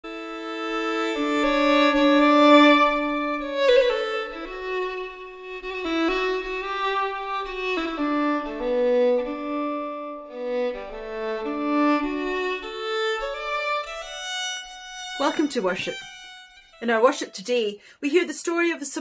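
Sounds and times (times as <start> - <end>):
slow bowed violin notes: 0.0 - 17.4.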